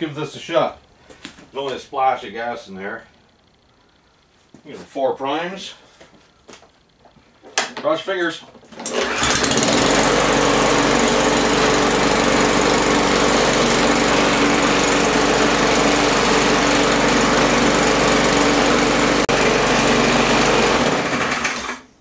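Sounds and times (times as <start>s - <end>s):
lawn mower engine running: 8.7s - 21.9s.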